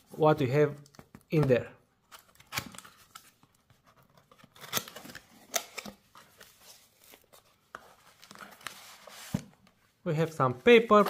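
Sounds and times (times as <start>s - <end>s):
cardboard scraping and rustling: 6.3s - 9.6s.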